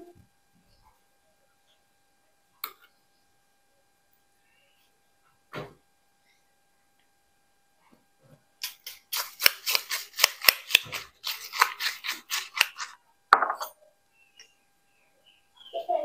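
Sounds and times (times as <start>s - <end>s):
kitchen utensil clicking and scraping: 8.6s - 13.8s.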